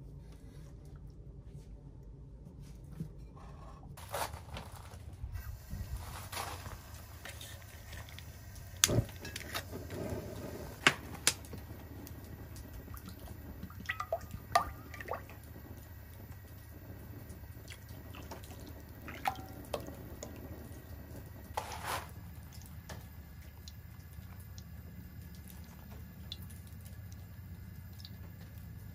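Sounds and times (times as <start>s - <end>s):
oil glugging into a metal pot: 12.7s - 15.5s, 17.6s - 20.4s.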